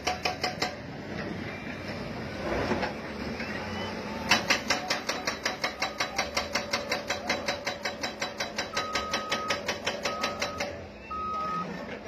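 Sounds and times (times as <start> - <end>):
hydraulic breaker hammering: 0.0 - 0.9, 4.2 - 10.8
reversing alarm beeps: 3.3 - 4.2, 8.7 - 11.8.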